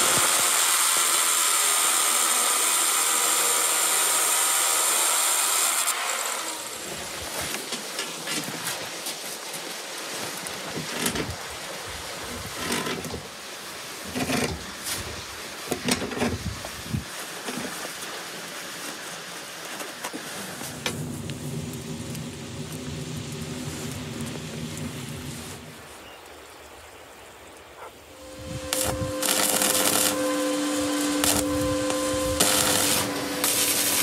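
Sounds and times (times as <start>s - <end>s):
small engine running: 0.0s - 6.8s, 28.2s - 34.0s.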